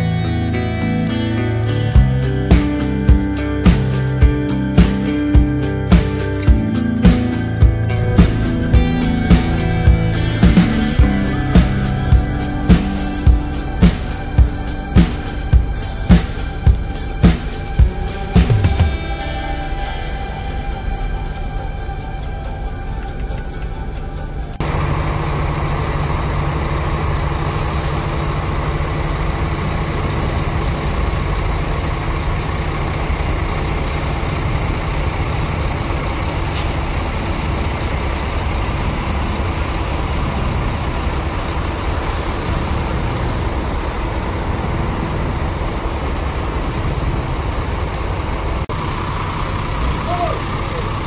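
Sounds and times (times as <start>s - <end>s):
diesel bus engine rumbling: 0.0s - 51.0s
road noise: 0.0s - 51.0s
air brake hisses: 27.2s - 28.7s, 42.0s - 43.0s.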